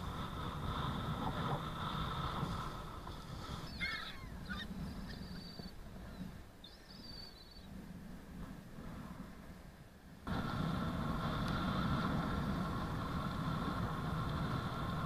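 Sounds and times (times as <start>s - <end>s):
wind rumble on microphone: 0.0s - 15.0s
gulls calling: 3.4s - 7.7s.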